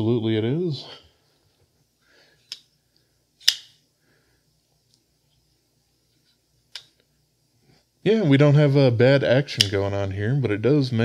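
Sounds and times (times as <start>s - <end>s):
folding knife blade clicks: 3.4s - 3.7s.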